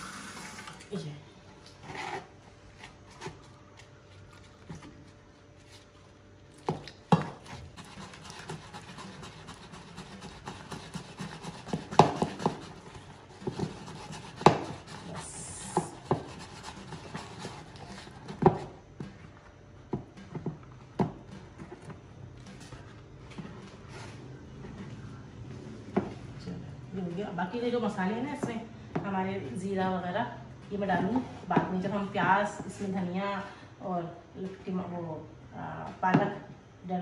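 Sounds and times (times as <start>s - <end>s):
hand mixing batter in plastic bowl: 1.6s - 19.5s.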